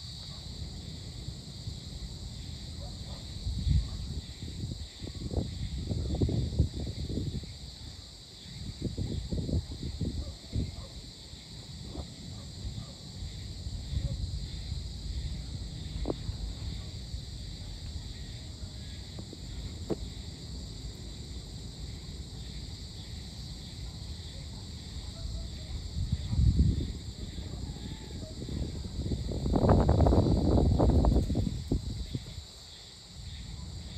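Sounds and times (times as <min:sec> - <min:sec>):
crickets trilling: 0:00.0 - 0:33.9.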